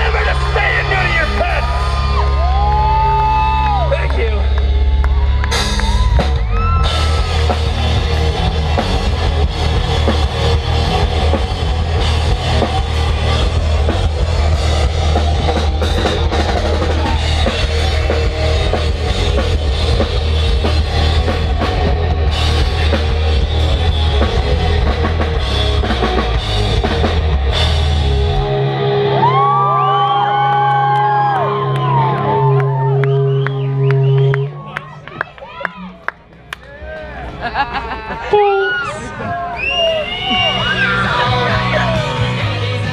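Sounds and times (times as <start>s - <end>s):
live rock band playing: 0.0s - 29.9s, 38.2s - 39.3s, 40.0s - 42.9s
rising and falling whoops: 1.7s - 3.9s, 4.8s - 7.7s, 29.0s - 34.5s
drum kit and cymbals: 5.5s - 28.6s.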